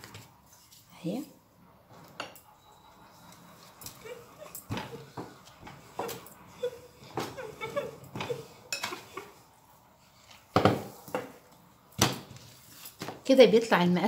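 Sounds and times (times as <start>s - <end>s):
rolling pin working dough: 3.2s - 11.5s.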